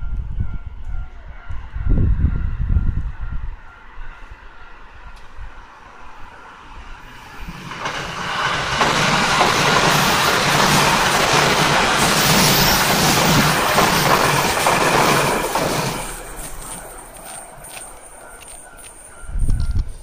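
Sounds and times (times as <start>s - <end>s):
electric train passing: 0.0s - 20.0s
level crossing warning bell: 8.7s - 20.0s.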